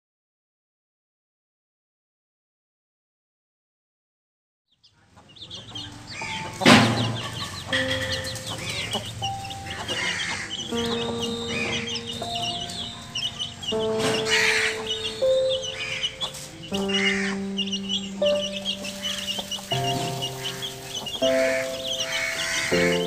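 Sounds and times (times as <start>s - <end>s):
chickens clucking: 4.8s - 23.0s
chicks peeping: 4.8s - 23.0s
background music with held notes: 5.4s - 23.0s.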